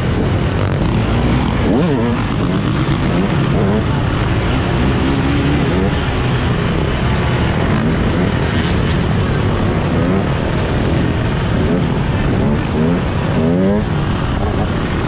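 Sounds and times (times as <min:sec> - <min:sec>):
dirt bike engines revving: 0:00.0 - 0:15.0
loud rushing noise: 0:00.0 - 0:15.0.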